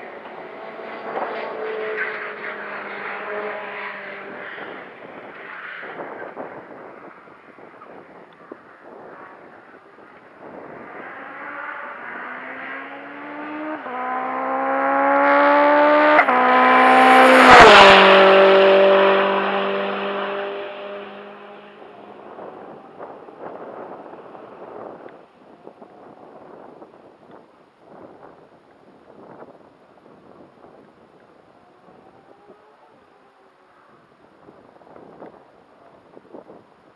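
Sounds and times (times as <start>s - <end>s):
race car engine passing by: 0.0s - 7.3s, 9.1s - 25.0s.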